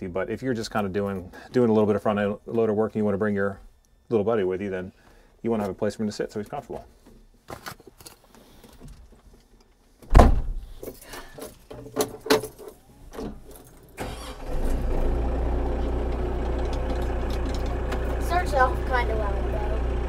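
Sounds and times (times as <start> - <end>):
loud thump: 10.1 - 10.6
diesel tractor engine starting and idling: 12.9 - 20.0.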